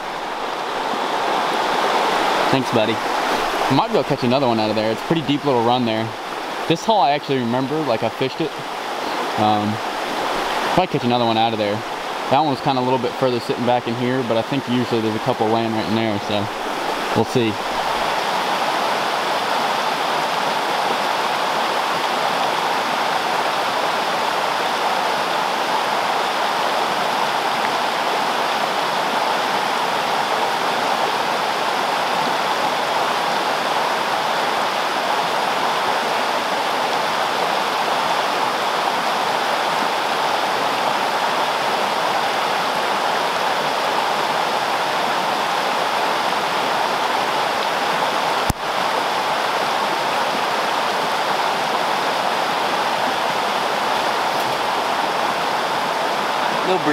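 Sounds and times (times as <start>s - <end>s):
creek rushing over rocks: 0.0s - 56.9s.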